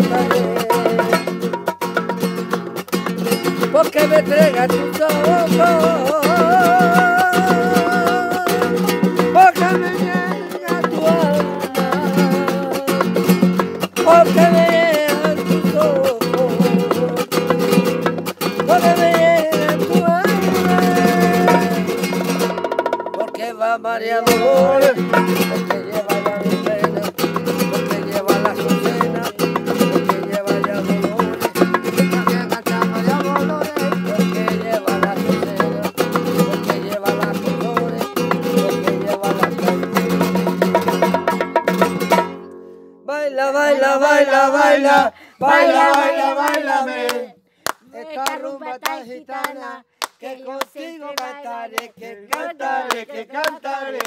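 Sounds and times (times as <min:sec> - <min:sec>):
person singing wordless melody: 0:00.0 - 0:01.5, 0:03.6 - 0:22.3, 0:23.1 - 0:40.6, 0:43.0 - 0:54.0
acoustic guitar strumming: 0:00.0 - 0:47.3.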